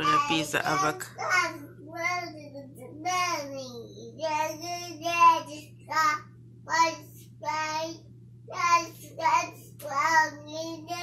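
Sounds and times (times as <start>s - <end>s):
toddler babbling: 0.0s - 6.1s.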